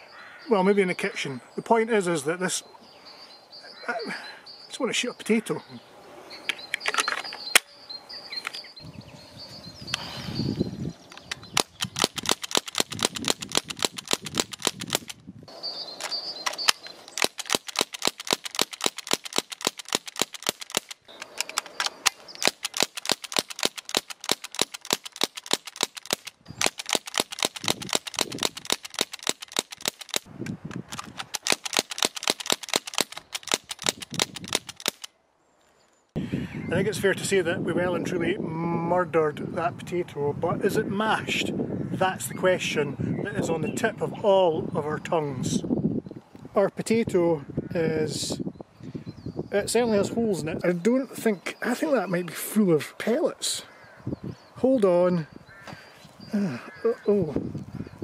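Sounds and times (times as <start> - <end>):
air rifle firing rapid cracks: 11.6 - 15.2, 16.5 - 30.3, 30.9 - 35.1.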